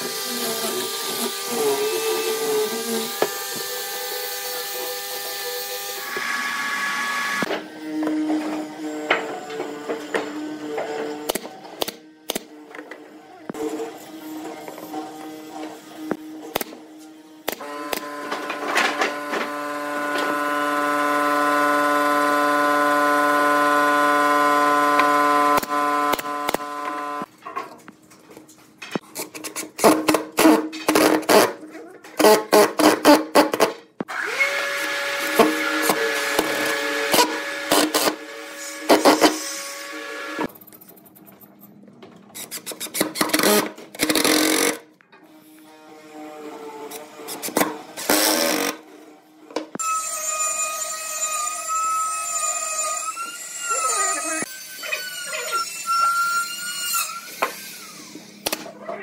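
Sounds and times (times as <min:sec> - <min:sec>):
impact driver motor whine: 0:17.5 - 0:27.3.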